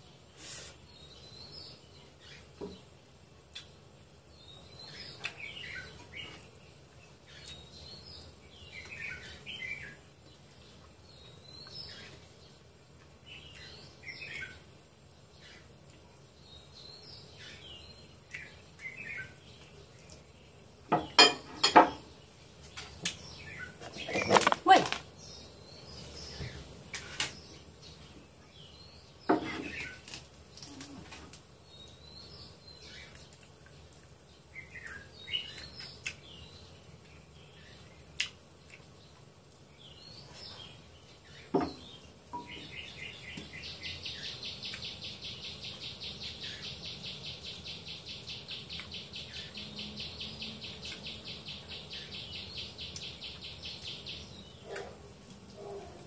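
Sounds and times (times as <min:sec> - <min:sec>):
birds chirping: 0:00.2 - 0:56.0
tableware clinking: 0:20.9 - 0:22.1.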